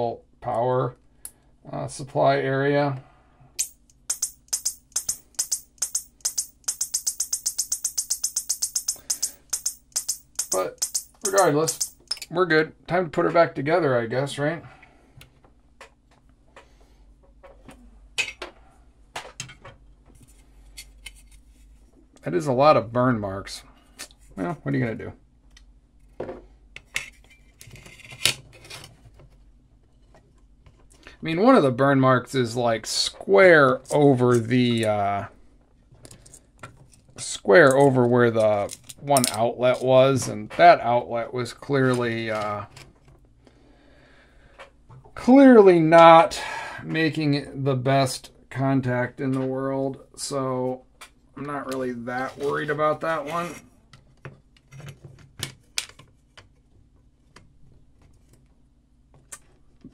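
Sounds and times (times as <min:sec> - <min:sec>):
small metal parts clinking: 0:03.6 - 0:12.3.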